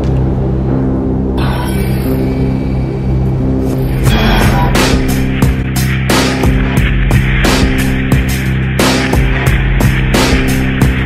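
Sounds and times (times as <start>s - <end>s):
held low music notes: 0.0s - 11.0s.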